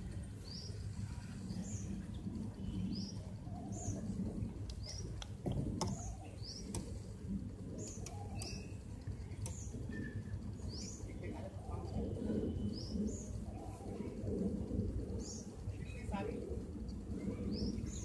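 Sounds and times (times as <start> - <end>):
low background rumble: 0.0 - 18.0
sharp clicks: 4.6 - 6.0, 7.8 - 9.7
small bird chirping: 7.8 - 11.2.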